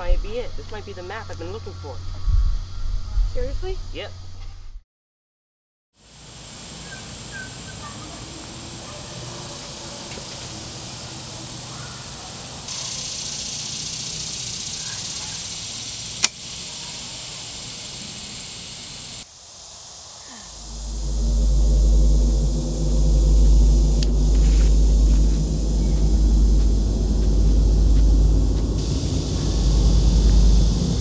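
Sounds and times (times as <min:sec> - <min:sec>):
woodland ambience: 0:00.0 - 0:04.1, 0:06.1 - 0:31.0
high hiss: 0:06.0 - 0:31.0
bowstring snap: 0:16.2 - 0:16.4.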